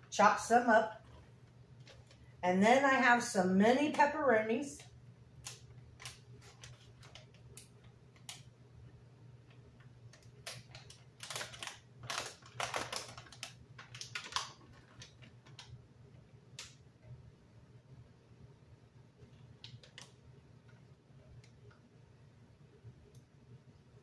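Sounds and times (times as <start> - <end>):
small clicks and taps: 4.8 - 8.5, 19.2 - 21.9
plastic bag crinkling: 10.1 - 15.8.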